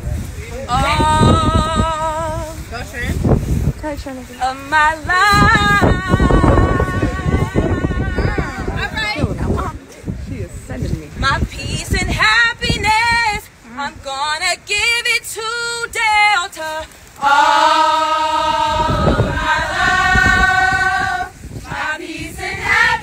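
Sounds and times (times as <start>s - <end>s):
women singing a cappella: 0.7s - 2.7s, 4.4s - 9.0s, 11.2s - 23.0s.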